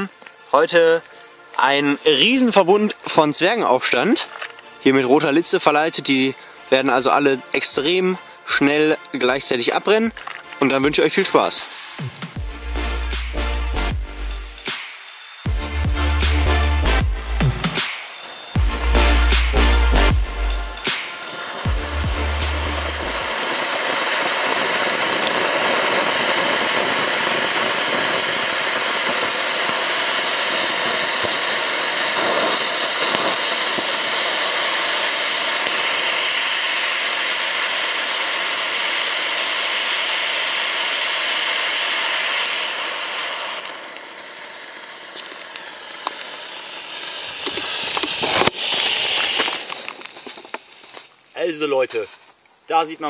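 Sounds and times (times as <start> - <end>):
firework fountains hissing: 0.0 - 53.0
sharp cracks: 14.6 - 15.5, 16.2 - 52.6.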